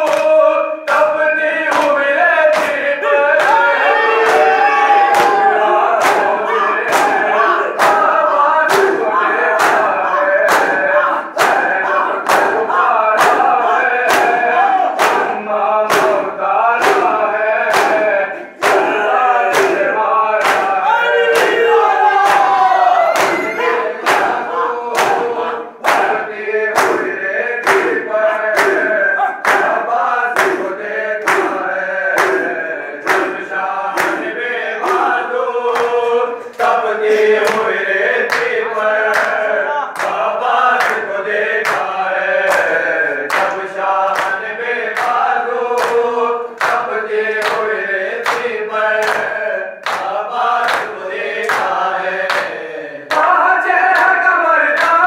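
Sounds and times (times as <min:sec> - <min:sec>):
hands slapping chests: 0:00.0 - 0:01.1, 0:01.7 - 0:03.6, 0:04.2 - 0:21.6, 0:23.1 - 0:24.4, 0:25.0 - 0:28.0, 0:28.6 - 0:29.8, 0:30.4 - 0:33.4, 0:34.0 - 0:34.3, 0:41.6 - 0:44.4
men chanting in unison: 0:00.0 - 0:55.0.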